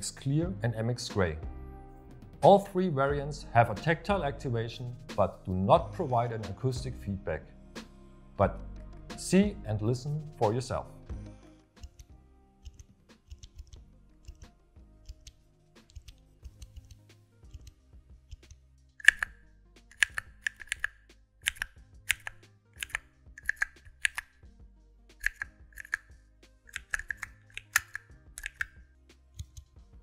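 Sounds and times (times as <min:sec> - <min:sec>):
key switch clicks: 0:19.0 - 0:19.3, 0:19.9 - 0:24.3, 0:25.2 - 0:26.0, 0:26.7 - 0:28.7
keys clacking on keypad: 0:19.0 - 0:19.3, 0:19.9 - 0:24.3, 0:25.2 - 0:26.1, 0:26.7 - 0:28.8.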